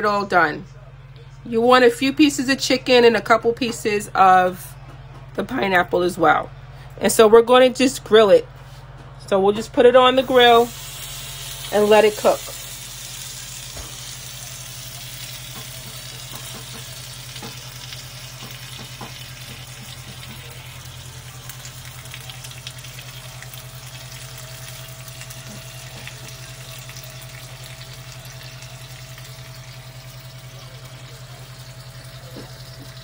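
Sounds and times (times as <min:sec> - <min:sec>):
skewer sizzling on grill: 0:10.2 - 0:33.0.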